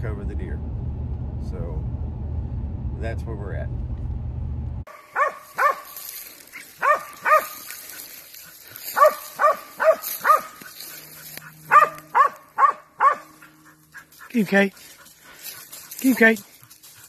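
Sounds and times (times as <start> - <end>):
dog barking: 4.9 - 14.3.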